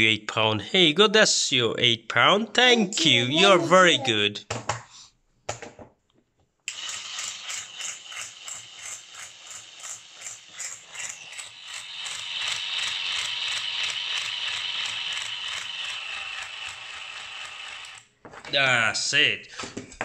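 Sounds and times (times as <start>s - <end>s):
toy drill whirring on wood: 6.7s - 18.1s.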